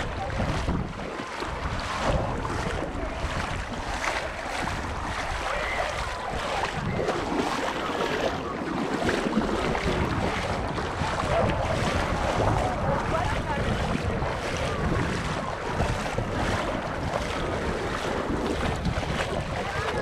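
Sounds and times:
gentle surf washing: 0.0 - 20.0
wind buffeting microphone: 0.0 - 20.0.

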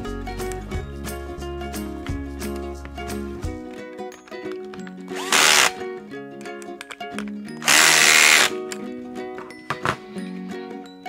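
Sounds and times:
background music: 0.0 - 11.0
power drill driving screws: 5.1 - 5.8, 7.6 - 8.5.

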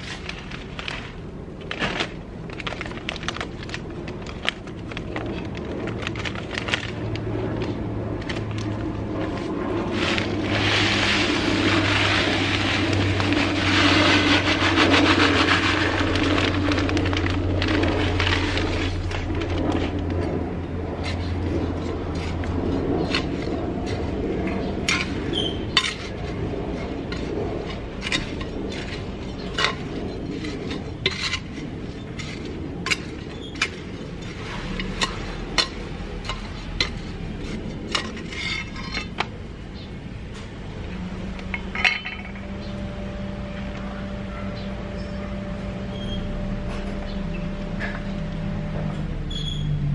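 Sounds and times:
hands rustling in potting mix: 0.0 - 39.0.

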